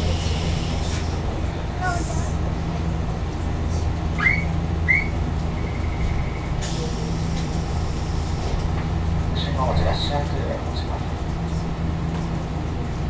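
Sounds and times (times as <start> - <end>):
tram low hum: 0.0 - 13.0
air brake hiss: 6.6 - 8.4.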